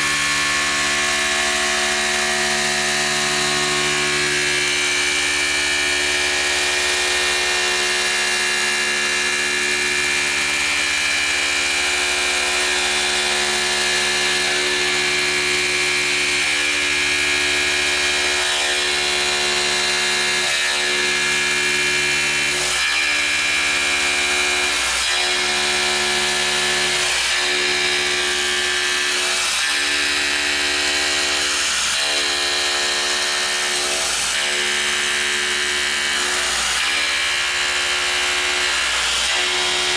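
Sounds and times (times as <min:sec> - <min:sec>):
milling machine cutting whine: 0:00.0 - 0:39.9.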